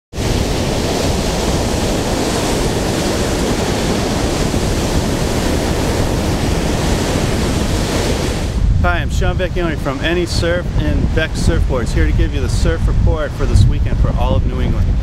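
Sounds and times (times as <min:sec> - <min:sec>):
ocean waves breaking on beach: 0:00.1 - 0:15.0
wind buffeting microphone: 0:00.1 - 0:15.0.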